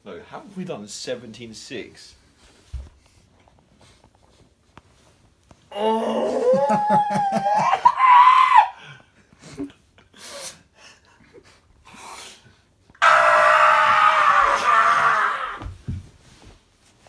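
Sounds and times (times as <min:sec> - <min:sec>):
person screaming: 0:05.7 - 0:08.8, 0:13.0 - 0:15.7
person's wordless vocal cry: 0:05.7 - 0:09.0.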